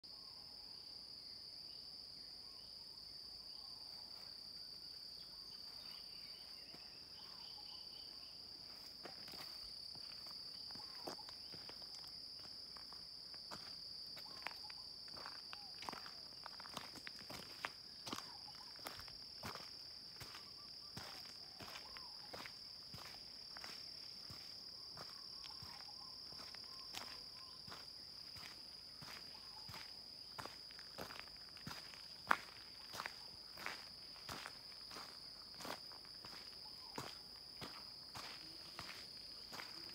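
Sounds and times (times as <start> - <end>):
footsteps on gravel: 8.7 - 39.9.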